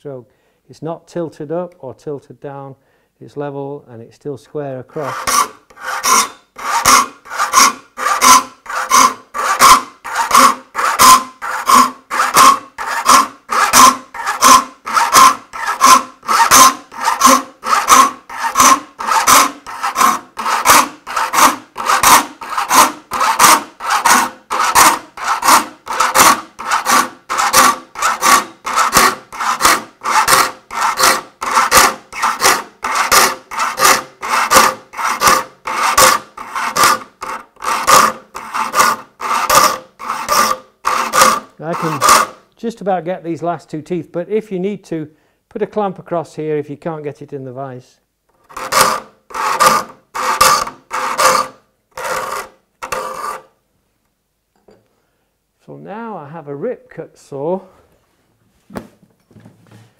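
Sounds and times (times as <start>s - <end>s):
file rasping on saw teeth: 4.9s - 42.4s, 48.4s - 53.5s.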